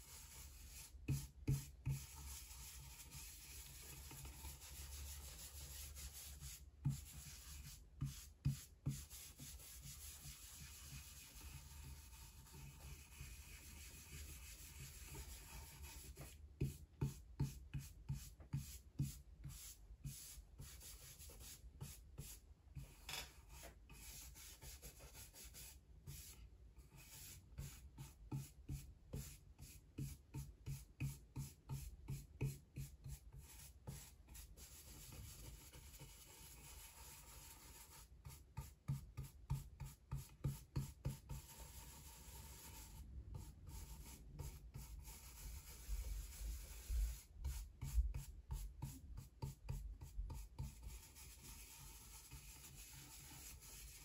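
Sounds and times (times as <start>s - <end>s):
brush scrubbing a woodblock: 0.0s - 16.4s, 31.4s - 54.0s.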